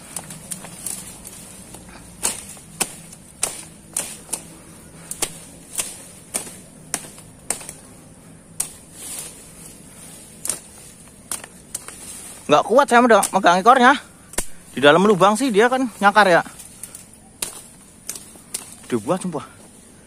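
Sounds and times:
dry sticks cracking and snapping: 0.0 - 20.0
steady high hiss: 0.0 - 20.0.

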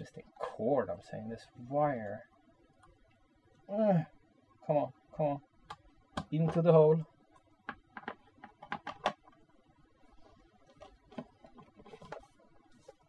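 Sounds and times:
speaker casing clicks and knocks: 5.7 - 6.7, 7.6 - 9.4.

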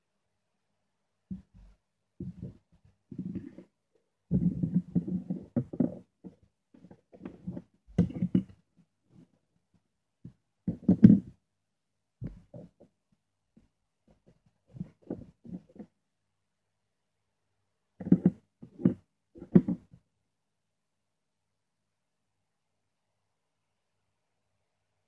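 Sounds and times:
tools knocking on wooden tabletop: 7.2 - 8.6, 18.0 - 19.9.

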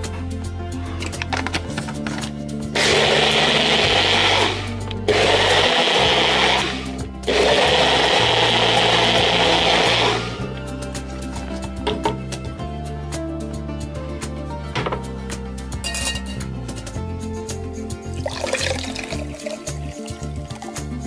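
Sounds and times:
background music: 0.0 - 21.0
blender running: 2.8 - 10.4.

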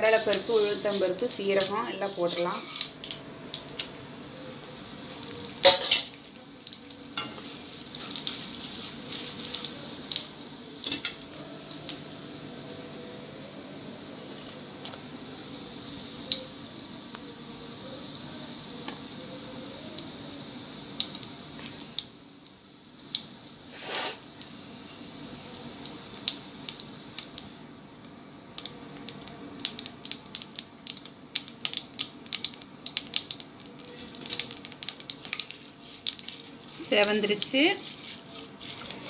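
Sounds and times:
oil popping and crackling: 0.0 - 12.0, 20.9 - 22.2, 22.9 - 23.4, 25.8 - 39.0
lentils sizzling in oil: 0.0 - 39.0.

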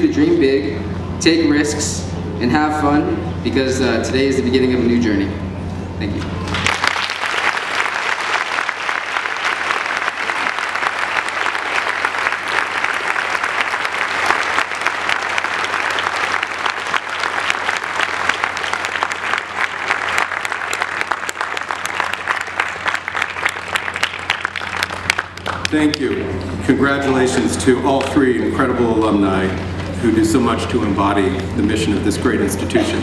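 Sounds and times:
audience applauding: 6.4 - 26.2.

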